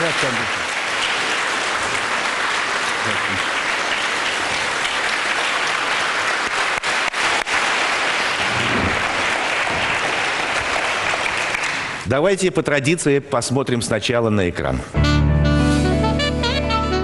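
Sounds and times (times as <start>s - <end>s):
large audience applauding: 0.0s - 12.1s.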